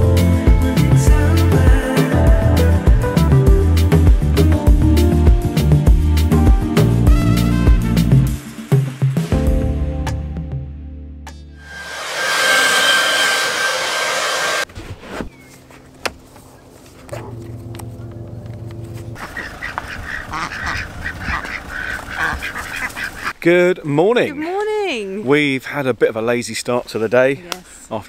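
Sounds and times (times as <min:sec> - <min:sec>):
music: 0:00.0 - 0:11.7
ducks quacking: 0:19.2 - 0:23.4.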